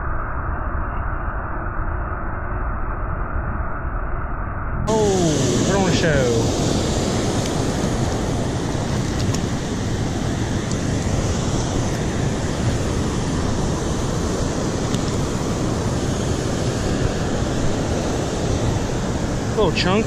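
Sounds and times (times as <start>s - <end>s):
flowing river current: 4.9s - 20.0s.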